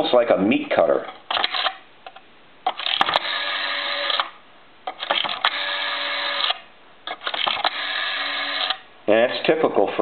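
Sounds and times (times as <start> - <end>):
rotary dial buzzing whir: 2.7 - 4.4, 5.0 - 8.8.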